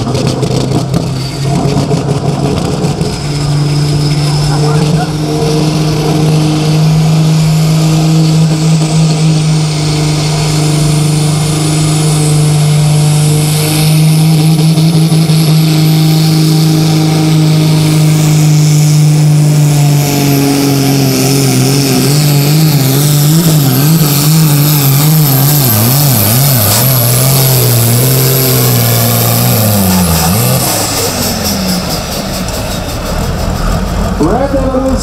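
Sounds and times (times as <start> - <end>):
high turbo whine: 0.0 - 35.0
tractor diesel engine at full load: 0.0 - 35.0.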